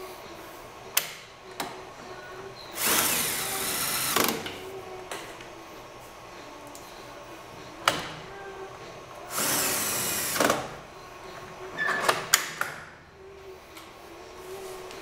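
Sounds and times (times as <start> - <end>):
cordless drill running: 2.8 - 4.4, 9.3 - 10.5.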